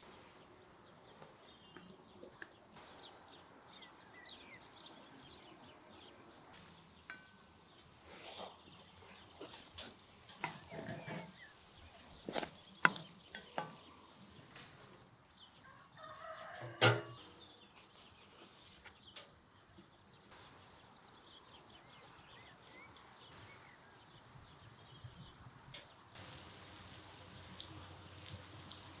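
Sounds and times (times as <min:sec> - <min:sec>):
faint background noise: 0:00.0 - 0:29.0
utensils knocking on frying pan: 0:09.4 - 0:14.0.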